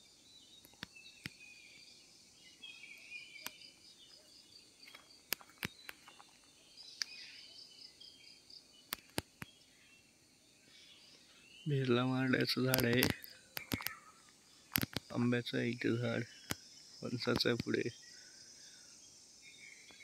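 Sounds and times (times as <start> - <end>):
birds calling: 0.0 - 20.0
pulsing insect chirr: 0.0 - 20.0
sharp clicks: 4.9 - 6.2, 8.9 - 9.5, 12.6 - 14.0, 14.7 - 17.8.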